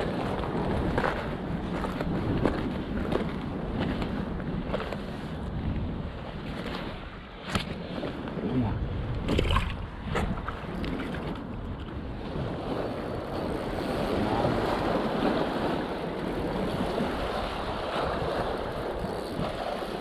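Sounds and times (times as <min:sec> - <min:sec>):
wind rumble on microphone: 0:00.0 - 0:20.0
footsteps on grass and rock: 0:00.8 - 0:05.1.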